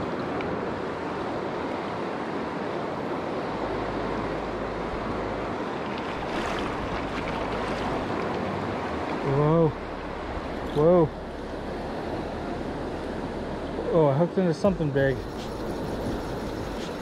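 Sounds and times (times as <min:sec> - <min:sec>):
river water rushing: 0:00.0 - 0:17.0
low rumble: 0:06.7 - 0:13.9.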